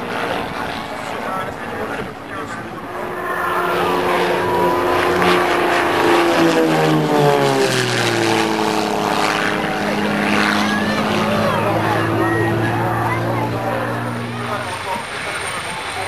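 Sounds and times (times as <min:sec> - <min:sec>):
propeller plane flying past: 0:00.0 - 0:16.0.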